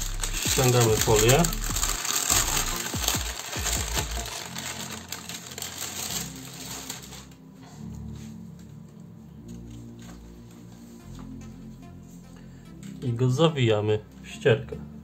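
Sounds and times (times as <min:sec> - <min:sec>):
baking paper crackling: 0:00.0 - 0:07.7
soft background music: 0:00.0 - 0:15.0.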